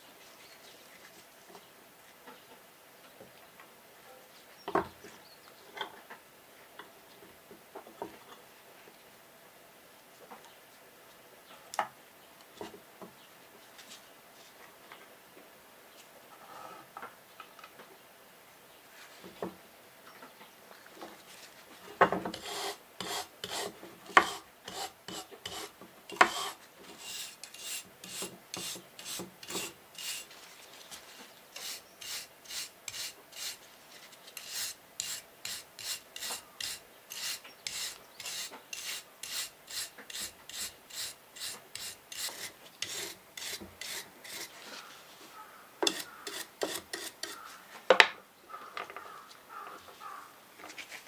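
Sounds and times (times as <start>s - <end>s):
brush scrubbing metal plate: 22.4s - 30.3s, 31.6s - 33.6s, 34.4s - 44.5s.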